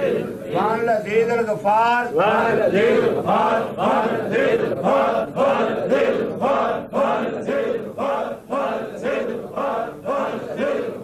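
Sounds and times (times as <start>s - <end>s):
men chanting in unison: 0.0s - 1.3s, 2.0s - 11.0s.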